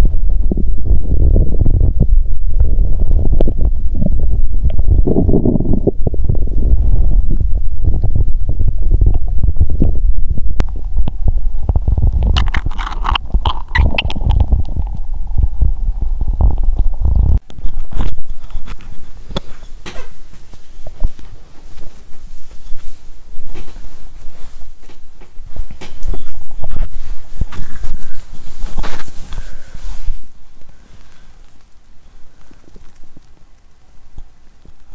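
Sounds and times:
stomach rumbling and gurgling: 0.0 - 34.9
rustling and handling noise: 12.1 - 15.1, 17.4 - 34.9.

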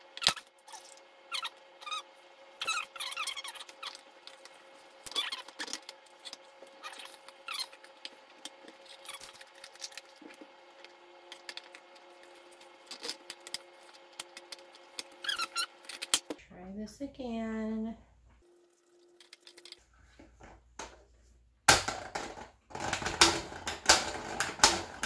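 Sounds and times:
plastic parts squeaking: 0.0 - 16.3, 19.1 - 19.8.

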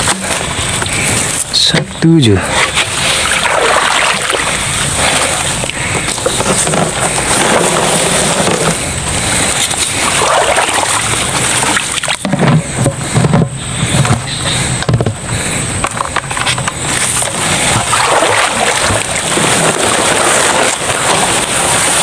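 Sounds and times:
water splashing into a bucket: 2.5 - 8.8, 9.5 - 13.4, 16.9 - 22.0.

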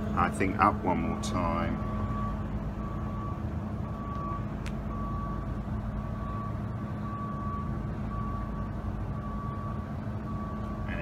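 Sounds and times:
electronic warning beeps: 1.8 - 8.6.

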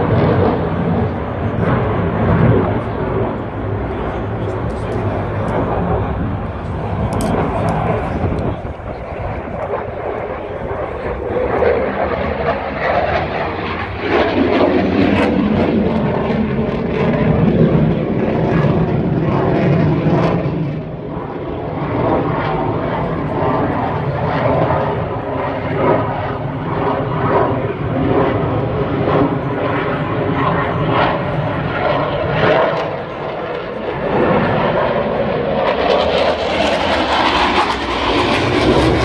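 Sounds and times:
jet engine passing overhead: 0.0 - 39.0.

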